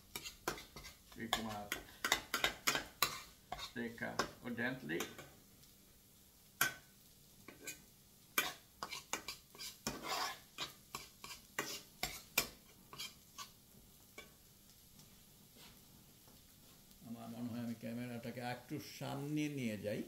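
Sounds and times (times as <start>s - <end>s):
spatula scraping a frying pan: 0.0s - 5.4s, 6.6s - 14.4s, 15.4s - 15.9s.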